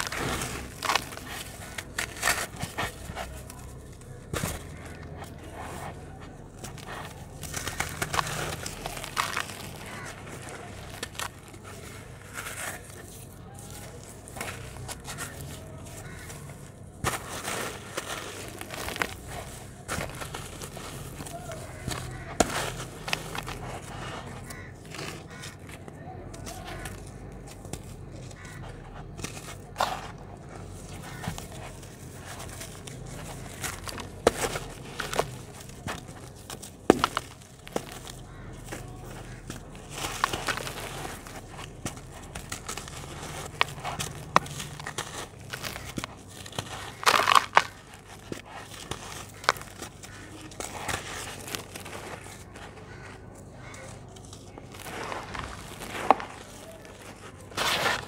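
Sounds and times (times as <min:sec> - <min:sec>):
dry dirt crumbled by hand: 0:00.0 - 0:58.0
sharp crack: 0:26.3 - 0:53.9.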